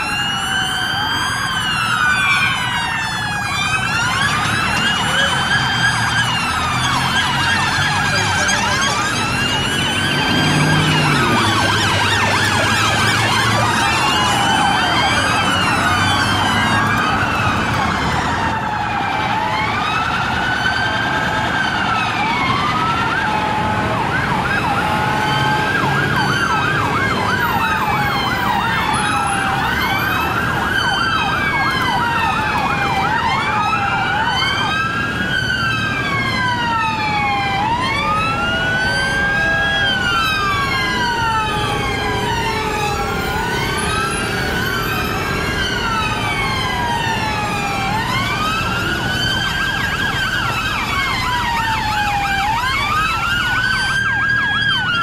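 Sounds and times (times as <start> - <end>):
police sirens wailing and yelping: 0.0 - 55.0.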